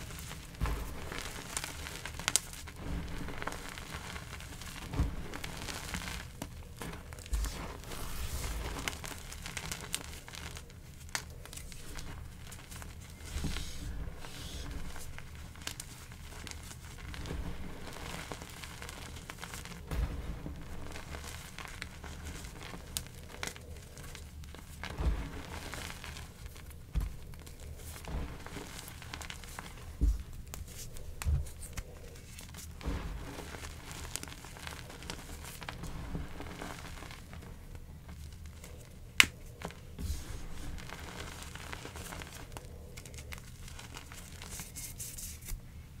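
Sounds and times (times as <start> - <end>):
dull thuds: 0.0 - 9.4, 19.5 - 23.4, 24.0 - 42.6
chalk crunching and crumbling: 0.0 - 45.6.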